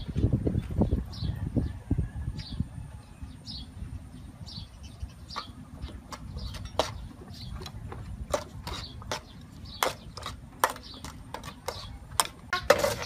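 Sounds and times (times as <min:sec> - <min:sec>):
ladle scraping a wok: 0:08.1 - 0:13.0.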